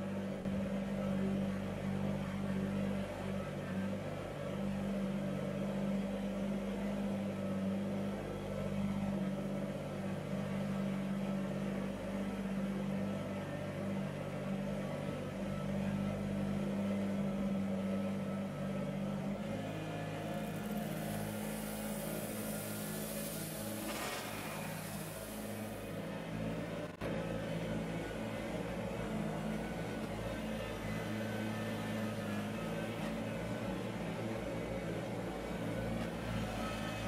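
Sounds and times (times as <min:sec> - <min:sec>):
diesel tractor engine running: 0:13.2 - 0:37.0
gravel pouring from bucket: 0:21.0 - 0:25.8.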